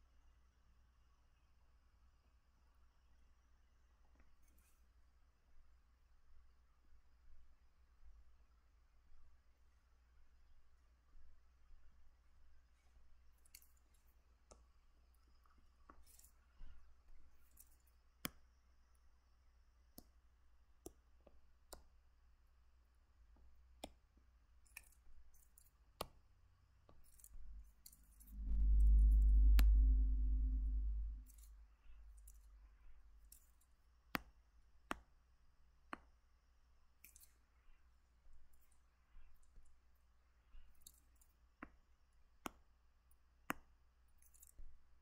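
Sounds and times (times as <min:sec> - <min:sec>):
loud low rumble: 0:28.2 - 0:32.1.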